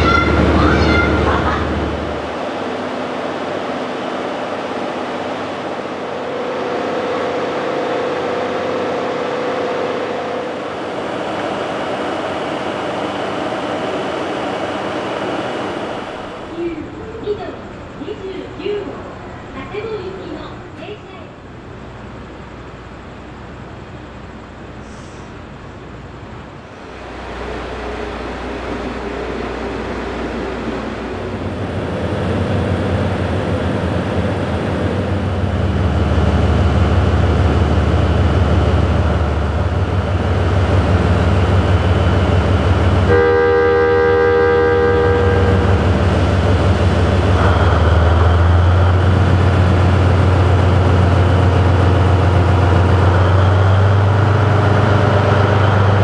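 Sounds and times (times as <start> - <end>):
train horn: 0.0 - 1.7, 6.0 - 10.9, 43.0 - 46.1
locomotive engine drone: 0.0 - 56.0.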